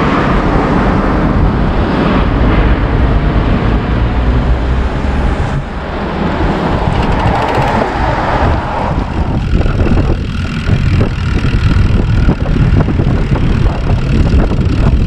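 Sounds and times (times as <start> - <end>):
wind buffeting microphone: 0.0 - 15.0
small clicks and rattles: 6.7 - 8.3.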